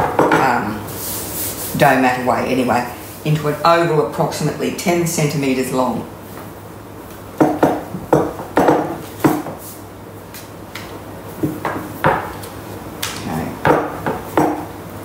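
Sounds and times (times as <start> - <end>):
rolling pin knocking on bench: 7.4 - 9.6, 11.4 - 12.4, 13.6 - 14.7.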